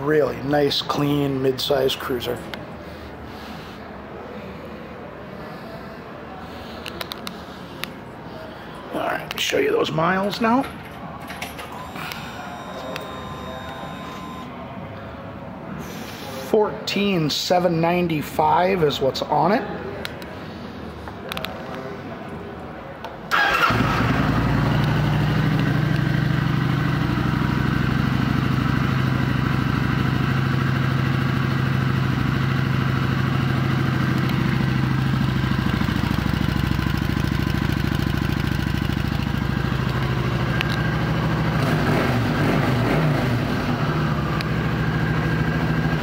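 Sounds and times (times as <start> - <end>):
motorcycle engine starting and idling: 23.3 - 46.0.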